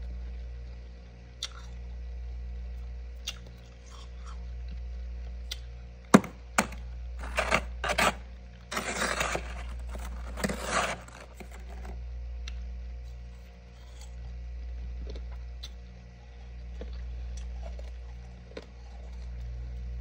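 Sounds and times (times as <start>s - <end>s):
steady low hum: 0.0s - 20.0s
utensil tapping frost: 6.2s - 11.9s
utensil scraping frost: 6.2s - 12.0s.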